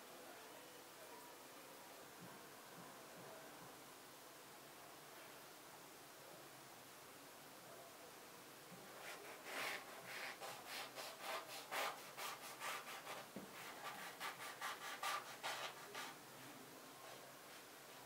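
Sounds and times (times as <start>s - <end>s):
knife sawing through pastry: 9.0s - 16.2s.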